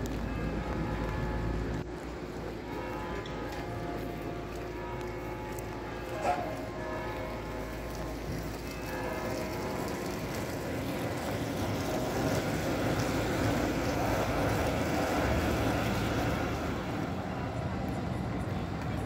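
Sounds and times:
tram rumbling on rails: 0.0 - 19.0.

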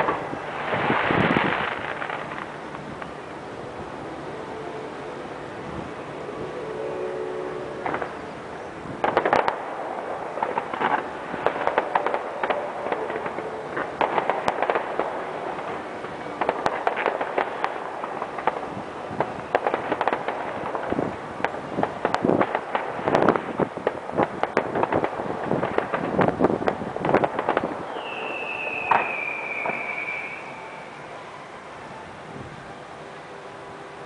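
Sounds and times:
fireworks popping and crackling: 0.0 - 3.8, 7.8 - 31.0.

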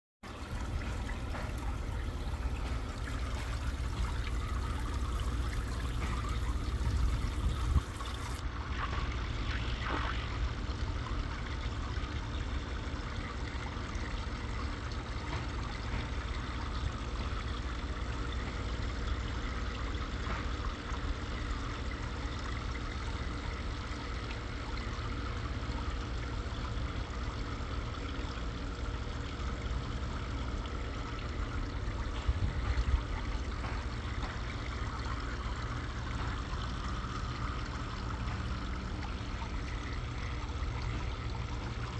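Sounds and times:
water trickling and splashing: 0.2 - 41.9.

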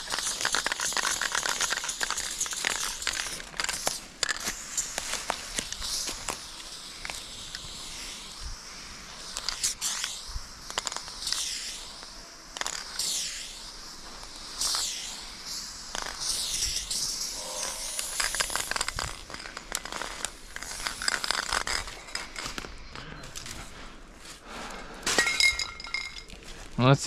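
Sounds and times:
short clicks and crackles: 0.0 - 7.7, 15.9 - 23.7
aerosol spray can hissing: 0.0 - 22.4.

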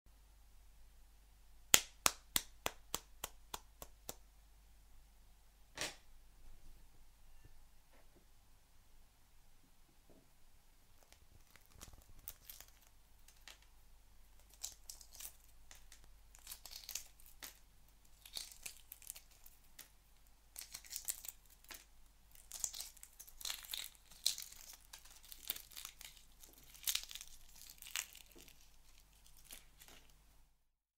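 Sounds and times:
eggshell cracking: 11.0 - 13.7, 14.3 - 30.2.

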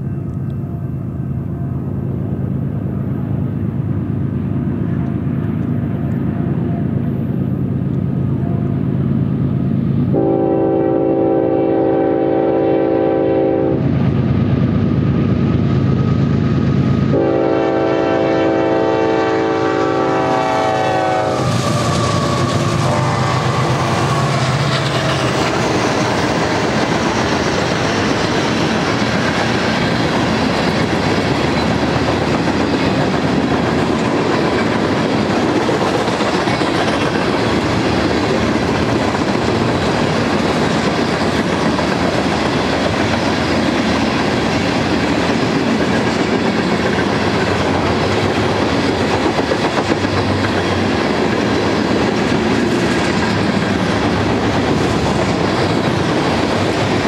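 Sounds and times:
diesel locomotive engine drone: 0.0 - 57.0
train horn blasts: 10.1 - 13.9, 17.1 - 24.4
train cars clacking on rails: 17.1 - 57.0.

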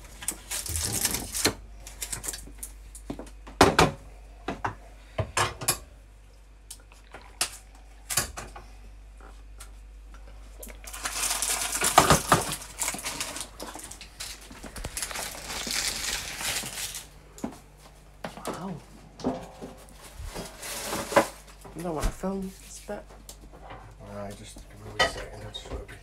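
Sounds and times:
dishes and glassware clinking: 25.0 - 25.7.

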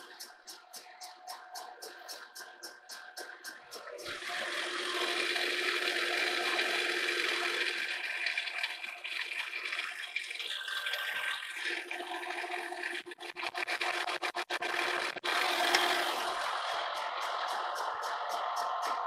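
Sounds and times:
boring mill cutting steel: 3.1 - 8.8, 13.9 - 19.0.

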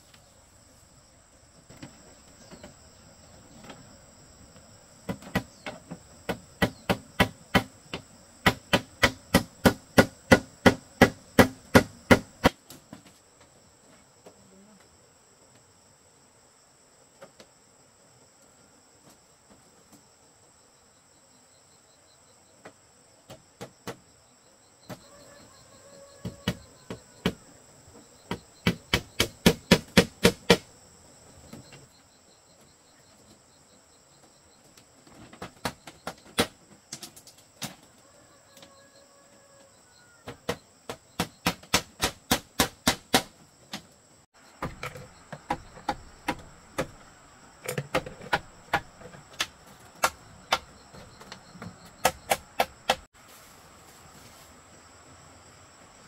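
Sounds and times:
high insect drone: 0.0 - 56.0
hammer striking bamboo frame: 6.3 - 12.6, 28.6 - 30.7, 40.9 - 43.3, 52.0 - 53.1.

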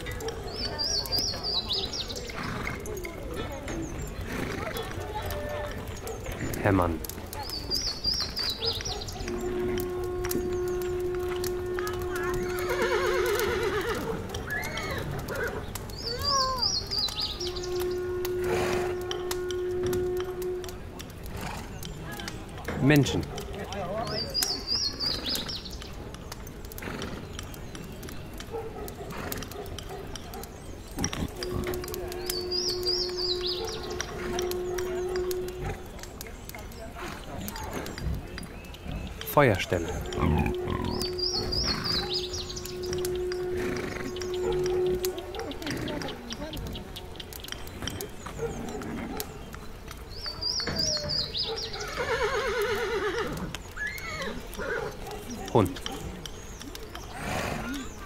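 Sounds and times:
crackles and clicks: 0.0 - 58.0
horse hooves clip-clopping: 0.0 - 58.0
horse whinnying: 12.5 - 15.6, 39.9 - 44.7, 51.7 - 55.0.

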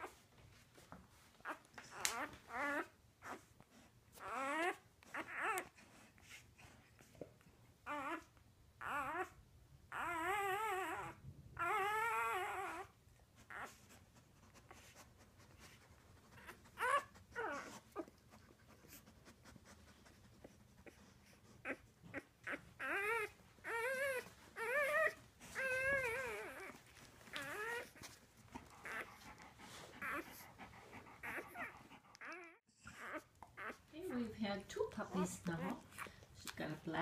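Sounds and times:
dog whimpering: 1.4 - 3.5, 4.1 - 5.8, 7.8 - 14.0, 16.3 - 18.2, 20.4 - 34.3.

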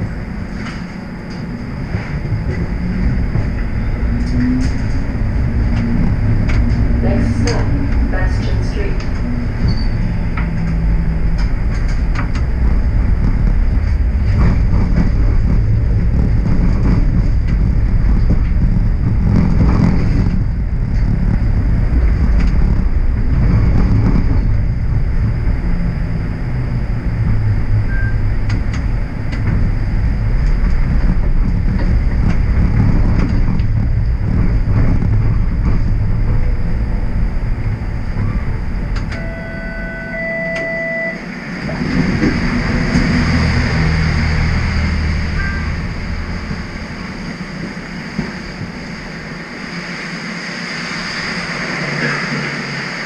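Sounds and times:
streetcar rumbling on rails: 0.0 - 53.0
faint high whine: 38.3 - 41.8, 45.2 - 46.7.

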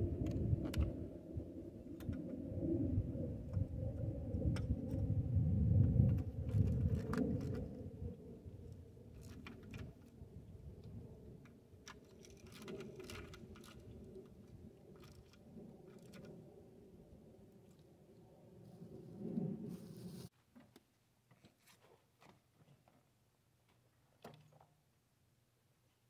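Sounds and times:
low rumble: 0.0 - 9.2.

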